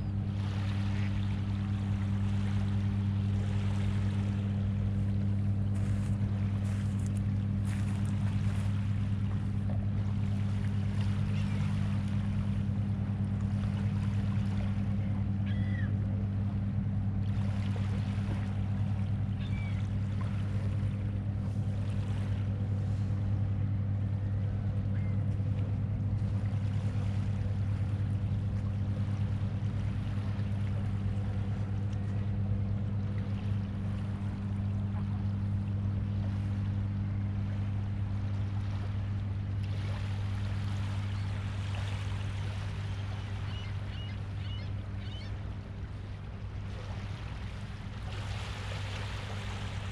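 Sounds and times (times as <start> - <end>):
low mechanical drone: 0.0 - 49.9
faint bird chirps: 15.0 - 16.0, 19.3 - 19.9, 24.9 - 25.2, 42.9 - 45.4.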